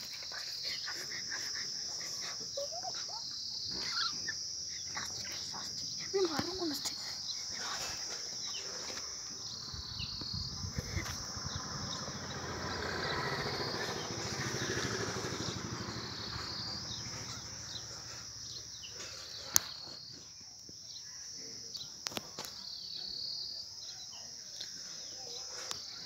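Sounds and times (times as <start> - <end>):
insects chirring: 0.0 - 26.0
bird chirps: 9.4 - 20.3.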